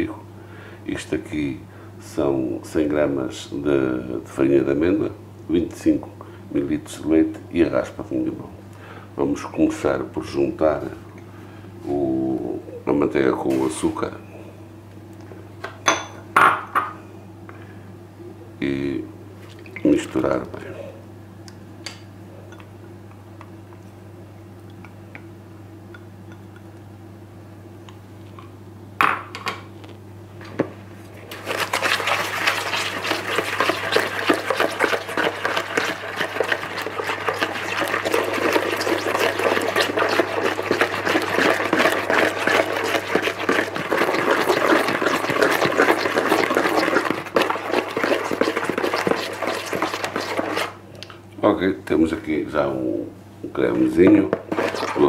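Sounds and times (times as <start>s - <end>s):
utensil scraping in bowl: 31.3s - 50.8s, 53.8s - 55.0s.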